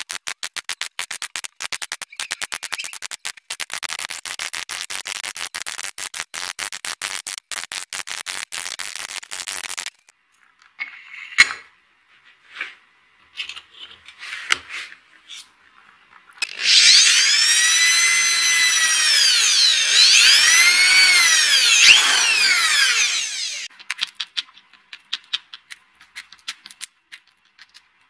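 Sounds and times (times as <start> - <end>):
electric drill: 16.4 - 23.7.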